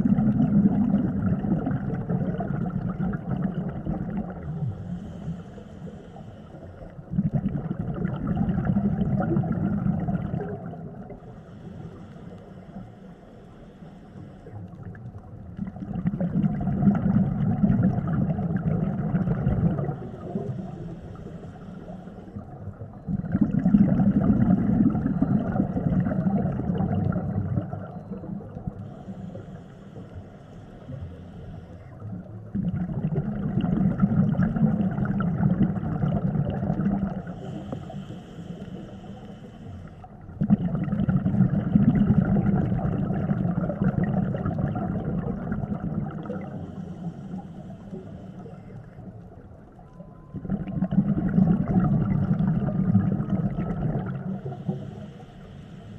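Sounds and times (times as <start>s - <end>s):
bubbling underwater exhalations: 0.0s - 4.8s, 7.0s - 11.2s, 15.6s - 20.7s, 23.0s - 28.7s, 32.4s - 37.6s, 40.3s - 46.8s, 50.3s - 54.7s
regulator inhalation hiss: 4.8s - 6.8s, 28.9s - 32.0s, 37.3s - 40.1s, 54.4s - 55.9s.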